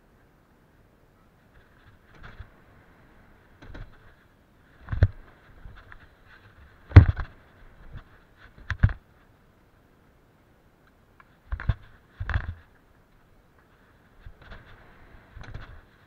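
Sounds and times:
bike knocking and rattling on ramps: 6.8s - 9.0s.

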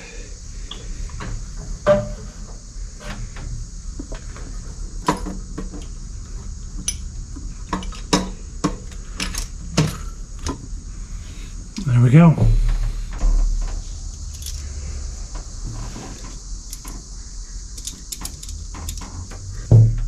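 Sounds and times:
metal clinks and knocks: 14.1s - 14.7s.

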